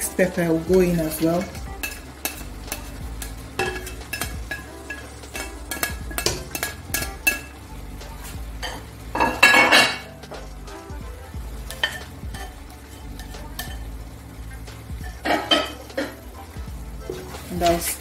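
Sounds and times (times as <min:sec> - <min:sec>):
sauce sizzling: 0:00.0 - 0:18.0
metal spoon scraping plate and pot: 0:01.8 - 0:07.6, 0:08.6 - 0:10.1, 0:11.8 - 0:12.5, 0:15.0 - 0:16.2.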